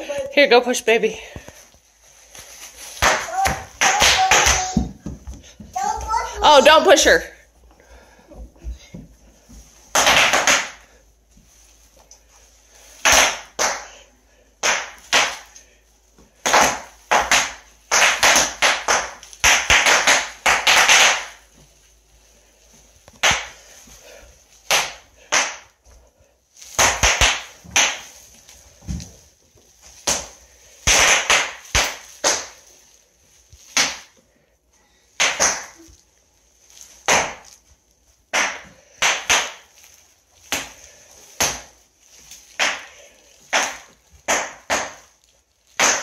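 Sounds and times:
bubble wrap popping: 1.5 - 6.2, 9.5 - 14.0, 14.6 - 25.9, 26.5 - 34.4, 35.0 - 46.0.

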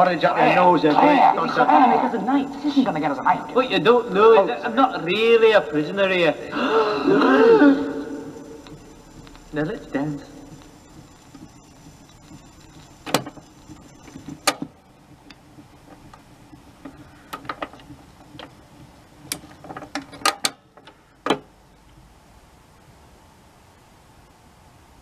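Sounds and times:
faint hum: 0.0 - 25.0
tone arm clicks and clunks: 7.9 - 22.1.

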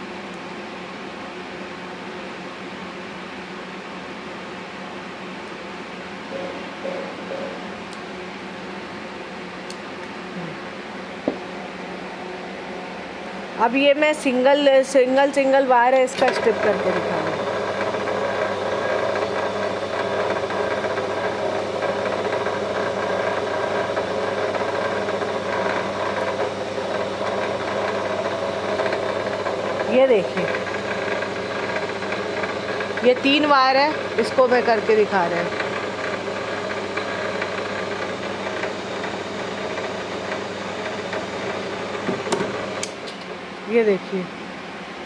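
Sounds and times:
electric motor machine humming: 14.3 - 44.2.

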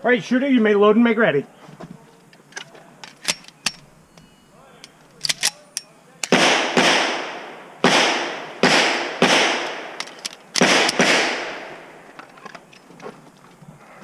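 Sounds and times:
echoing pistol shots: 6.2 - 12.0.

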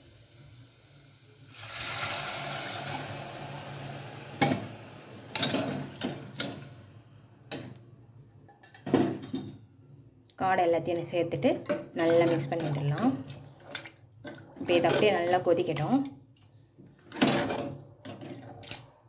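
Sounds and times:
liquid splashing pour: 1.4 - 6.0.

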